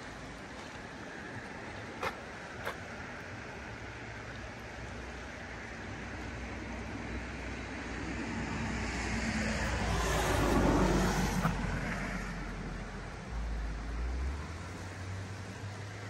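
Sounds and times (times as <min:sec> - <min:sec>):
vehicle passing by: 0:07.9 - 0:16.0.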